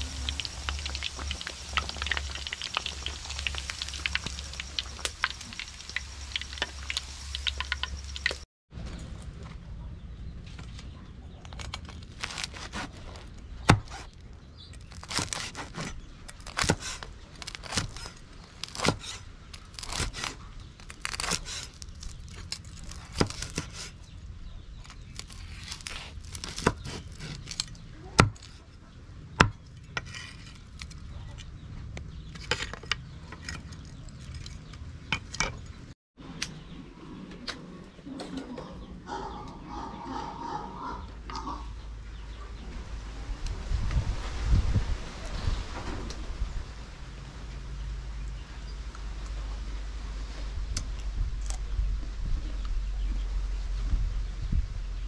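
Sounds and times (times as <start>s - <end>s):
crisp skin crunching: 11.4s - 14.1s, 14.8s - 23.8s, 24.8s - 27.8s.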